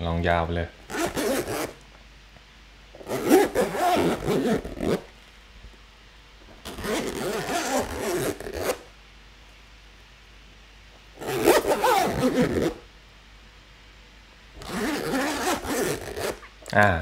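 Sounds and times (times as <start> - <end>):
zipper being pulled: 0.9 - 1.8, 3.0 - 5.1, 6.6 - 8.8, 11.2 - 12.8, 14.6 - 16.5.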